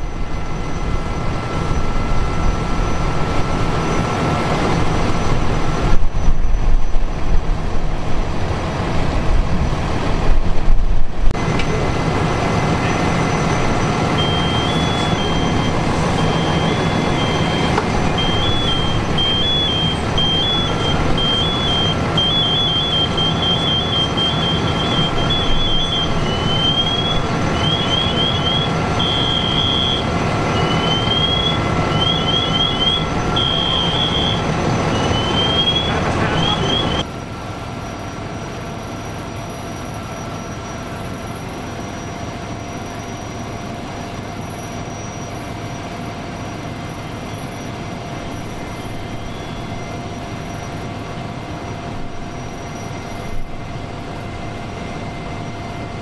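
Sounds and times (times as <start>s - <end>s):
electronic alarm beeping: 0.0s - 7.3s, 12.7s - 37.1s, 47.2s - 51.0s
fire engine running: 0.0s - 56.0s.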